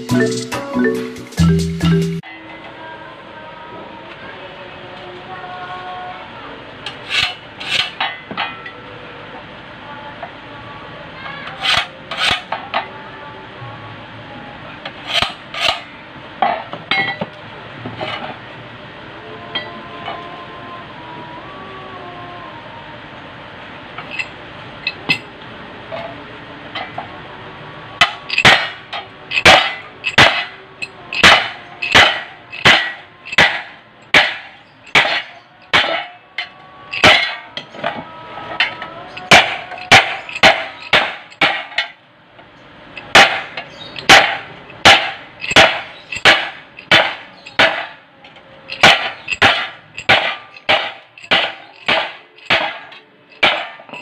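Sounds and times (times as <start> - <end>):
hammer striking chisel on metal: 15.0 - 17.3, 28.0 - 38.0, 38.6 - 42.0, 43.0 - 48.0, 48.7 - 54.0.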